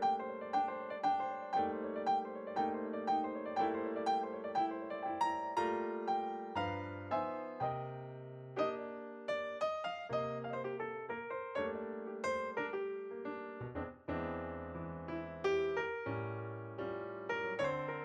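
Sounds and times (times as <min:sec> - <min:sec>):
piano music: 0:00.0 - 0:18.0.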